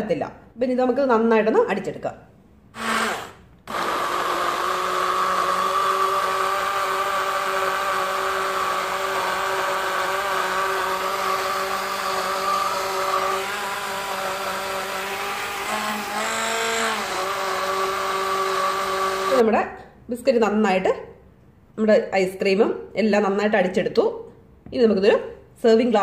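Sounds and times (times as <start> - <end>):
electric blender motor running: 2.8 - 19.4.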